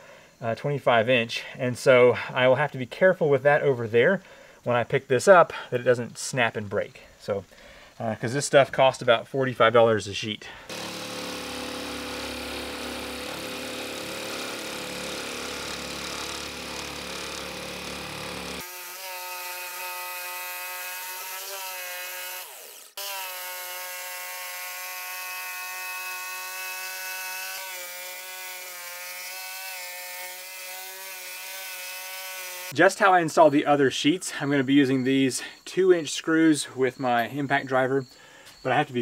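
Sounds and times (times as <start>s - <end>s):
jigsaw motor whine: 10.7s - 32.8s
saw blade rasping through board: 10.7s - 32.8s.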